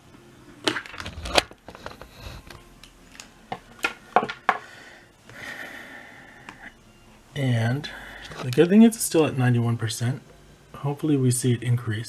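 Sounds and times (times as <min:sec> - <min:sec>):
faint steady sound: 0:01.7 - 0:12.0.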